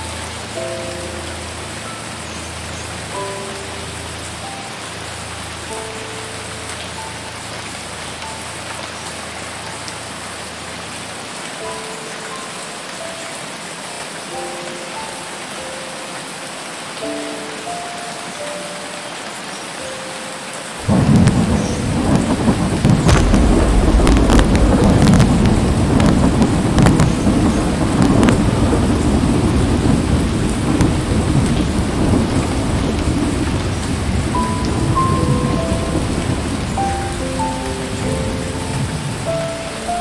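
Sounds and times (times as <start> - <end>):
light music tune: 0.0 - 10.2, 11.4 - 22.7, 34.4 - 40.0
heavy rain and flood water: 0.0 - 40.0.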